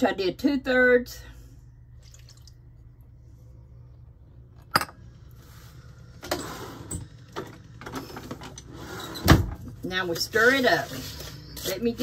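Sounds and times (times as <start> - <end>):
low hum: 1.2 - 6.2.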